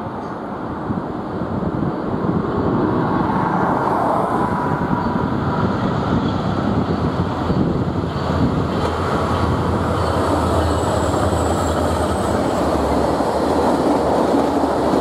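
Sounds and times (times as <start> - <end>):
wind buffeting microphone: 0.5 - 15.0
diesel locomotive rumble: 4.4 - 15.0.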